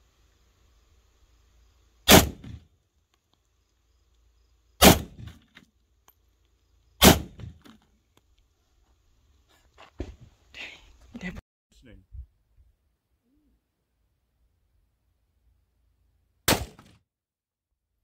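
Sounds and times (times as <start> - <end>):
rifle shots with echo: 2.1 - 2.6, 4.8 - 5.4, 7.0 - 7.5, 16.5 - 17.0.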